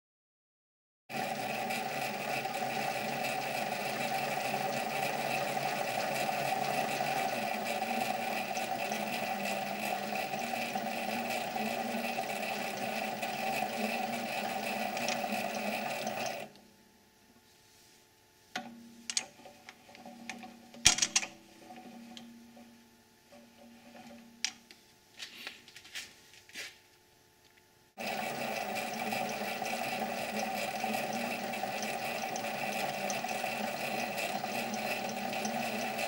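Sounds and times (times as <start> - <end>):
lathe motor and gear whine: 1.1 - 16.5, 28.0 - 36.0.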